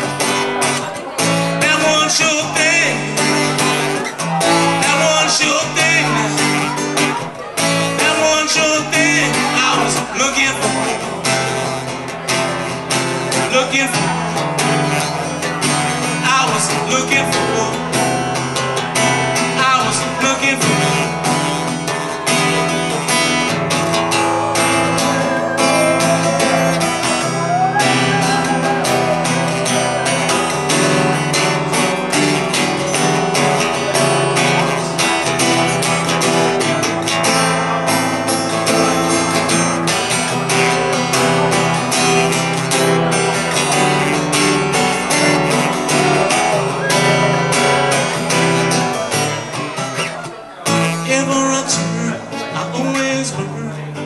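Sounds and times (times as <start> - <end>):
man singing: 0.0 - 12.6, 13.2 - 38.0, 50.7 - 54.0
acoustic guitar strumming: 0.0 - 54.0.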